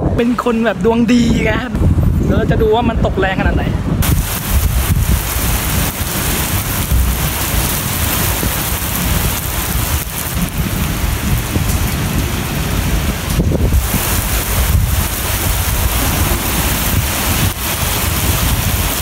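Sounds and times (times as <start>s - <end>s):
heavy rain on concrete and cars: 4.0s - 19.0s.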